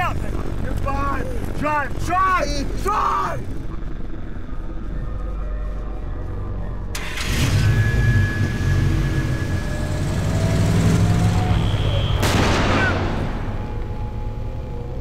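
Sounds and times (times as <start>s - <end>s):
vehicle engine rumbling: 3.5s - 15.0s
sudden loud noise: 8.6s - 13.8s.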